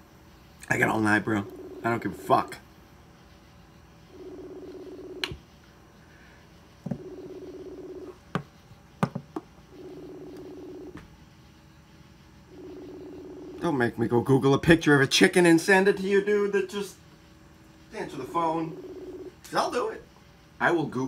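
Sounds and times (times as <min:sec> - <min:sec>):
phone ringback tone: 0:01.2 - 0:02.4, 0:04.1 - 0:05.2, 0:06.9 - 0:08.2, 0:09.7 - 0:11.0, 0:12.5 - 0:13.6, 0:18.3 - 0:19.3.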